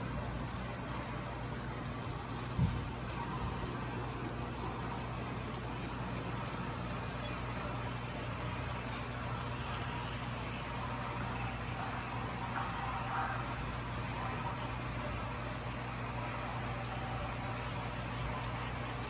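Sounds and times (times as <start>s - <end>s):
model train wheels rattling: 0.0s - 8.6s.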